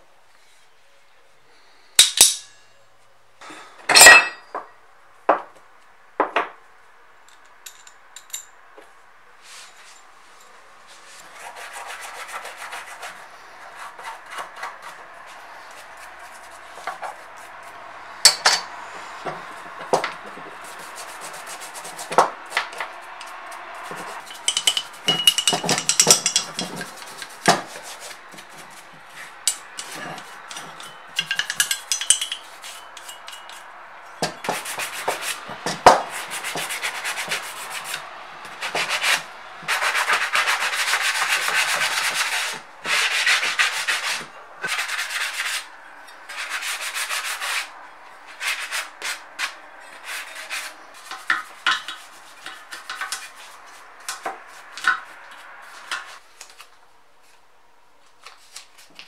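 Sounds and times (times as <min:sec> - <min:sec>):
metal clanks on workbench: 0:03.9 - 0:04.6, 0:24.3 - 0:26.9
toothbrush scrubbing metal part: 0:29.5 - 0:33.7, 0:48.6 - 0:56.2.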